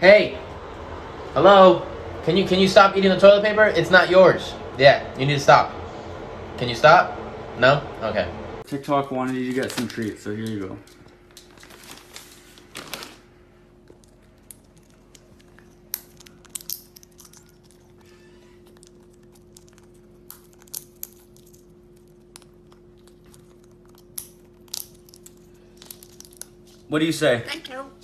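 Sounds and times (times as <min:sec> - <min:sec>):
steady low hum: 0:00.0 - 0:28.0
parrot cracking seeds: 0:13.8 - 0:26.8.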